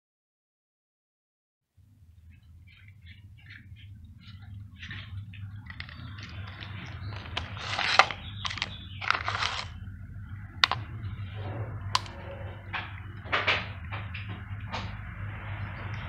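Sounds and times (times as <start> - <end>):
sharp clicks: 5.7 - 9.8.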